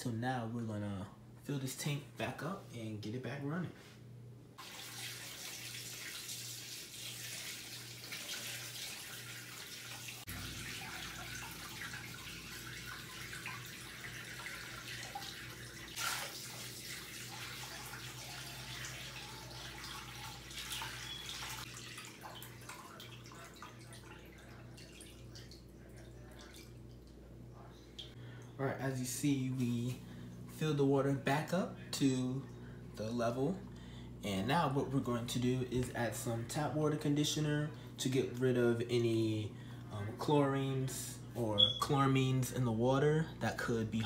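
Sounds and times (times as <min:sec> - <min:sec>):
low steady hum: 0:00.0 - 0:44.0
water splashing into aquarium: 0:04.6 - 0:27.2.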